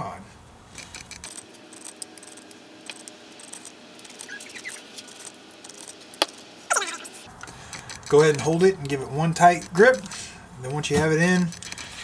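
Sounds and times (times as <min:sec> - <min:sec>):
fishing reel clicking and rattling: 0:07.4 - 0:08.8, 0:11.2 - 0:12.0.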